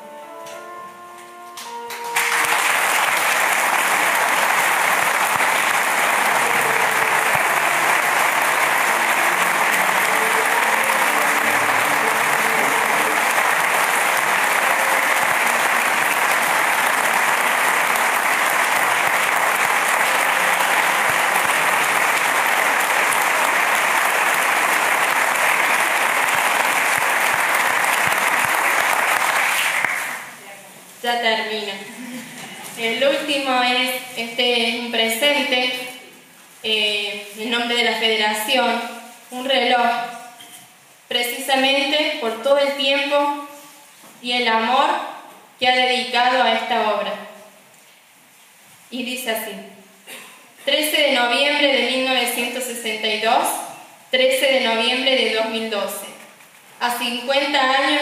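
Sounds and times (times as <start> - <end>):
audience applauding: 1.8 - 30.4.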